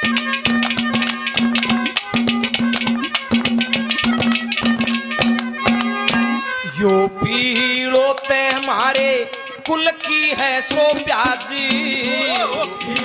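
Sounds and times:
hand drum strokes: 0.0s - 6.6s, 7.2s - 13.0s
harmonium held note: 0.0s - 13.0s.

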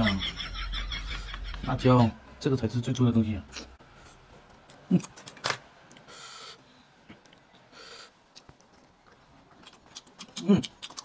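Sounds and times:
chewing mouth sounds: 8.3s - 11.0s.

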